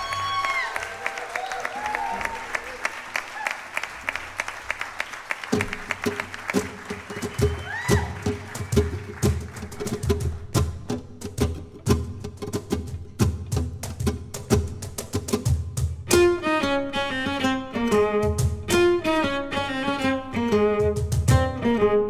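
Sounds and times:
rhythmic handclaps: 0.1s - 15.8s
cajon low strikes: 8.0s - 16.2s, 18.2s - 18.9s, 20.8s - 21.6s.

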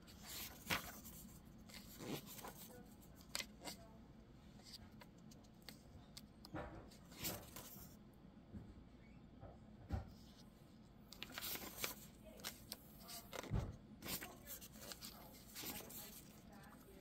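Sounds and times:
paper pages turning: 0.1s - 3.8s, 7.0s - 7.9s, 11.1s - 17.0s.

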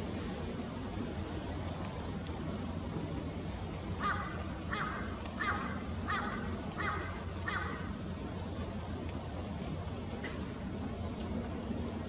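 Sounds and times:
bird calling: 3.9s - 8.8s.

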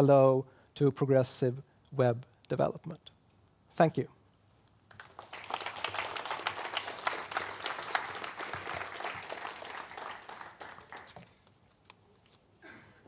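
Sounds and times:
audience applauding: 4.9s - 11.3s.

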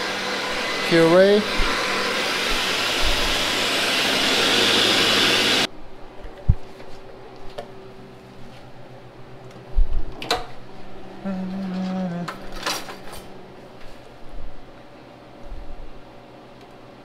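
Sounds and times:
blender running: 0.0s - 5.7s.

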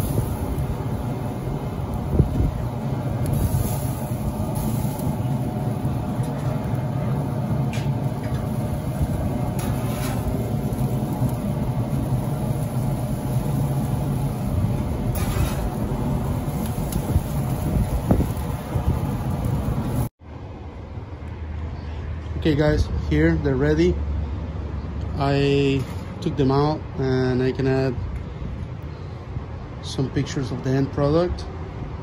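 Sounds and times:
steady low rumble: 0.0s - 32.0s
metal spatula scraping grill grates: 3.3s - 5.1s, 9.5s - 11.2s, 15.1s - 15.8s.

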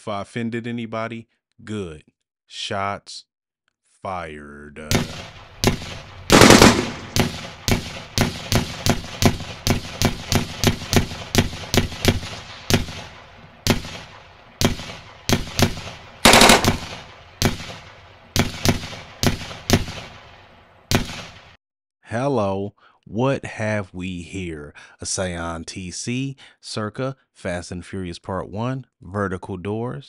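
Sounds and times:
gunshots: 4.8s - 21.6s
loud gunfire blasts: 4.8s - 21.6s.

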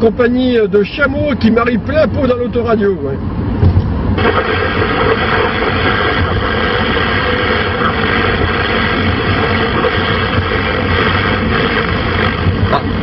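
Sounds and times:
car rumbling on road: 0.0s - 13.0s
radio static hiss: 4.1s - 13.0s.

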